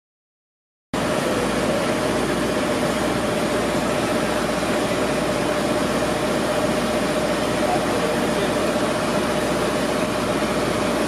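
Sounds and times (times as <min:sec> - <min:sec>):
constant hum: 0:01.0 - 0:11.0
engine idling: 0:01.0 - 0:11.0.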